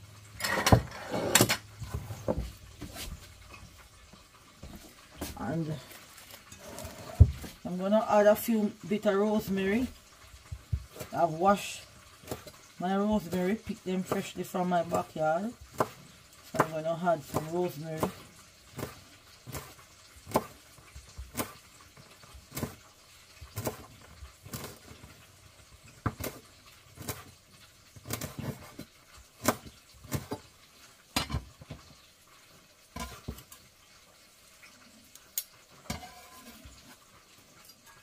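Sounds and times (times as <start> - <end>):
knife chopping on wooden board: 17.3 - 18.2, 18.8 - 20.6, 21.2 - 21.6, 23.6 - 24.9, 28.0 - 28.8, 29.4 - 30.4.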